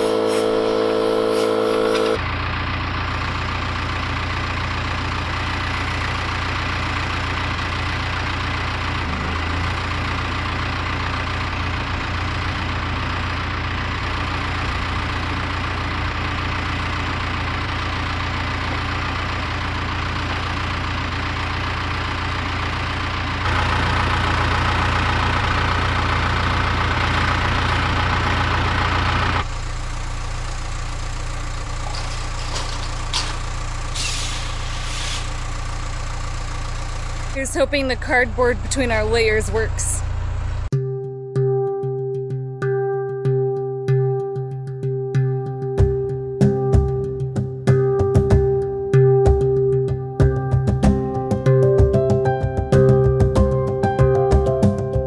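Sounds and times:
engine idling: 0:00.0 - 0:40.7, 0:45.8 - 0:55.0.

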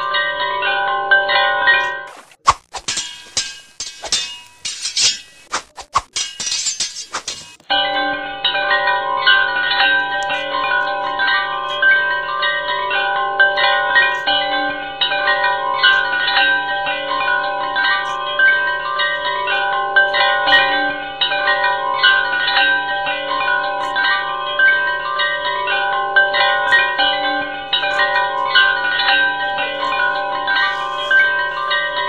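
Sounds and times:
bell-like chime music: 0:00.0 - 0:02.2, 0:07.7 - 0:32.0.

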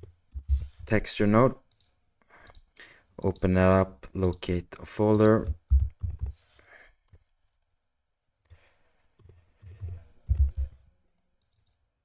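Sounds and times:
typing on keyboard: 0:05.2 - 0:06.4, 0:09.2 - 0:10.8.

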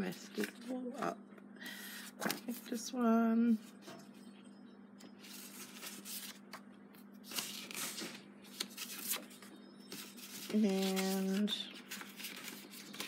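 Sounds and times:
paper cards rustling and sliding: 0:01.9 - 0:02.8, 0:05.1 - 0:06.6, 0:07.2 - 0:13.0.

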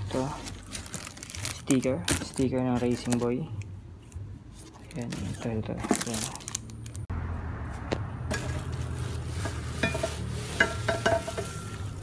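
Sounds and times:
plastic wrapping crinkling: 0:00.0 - 0:03.5, 0:04.8 - 0:07.1, 0:08.3 - 0:12.0.

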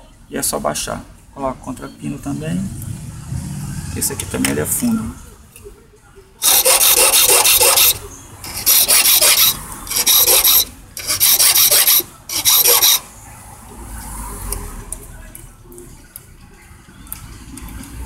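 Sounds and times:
hand file rasping metal: 0:06.4 - 0:13.1.

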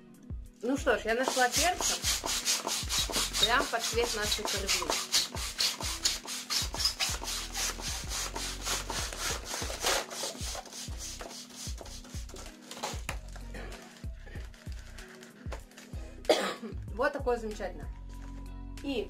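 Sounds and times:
balloons being rubbed: 0:01.2 - 0:13.1.

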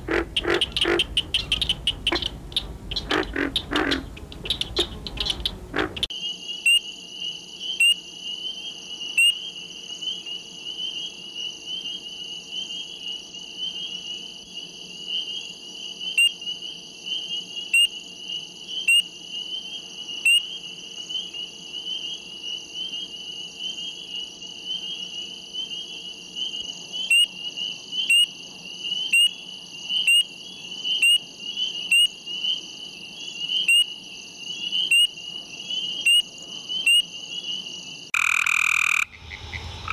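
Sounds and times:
short sharp frog calls: 0:00.0 - 0:06.9, 0:09.0 - 0:10.2, 0:18.7 - 0:23.1, 0:23.7 - 0:34.0, 0:34.6 - 0:39.9
high-pitched frog trill: 0:38.1 - 0:39.9.

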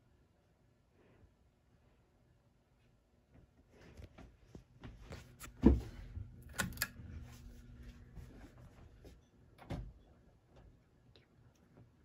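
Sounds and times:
ceiling fan hum: 0:00.0 - 0:12.0.

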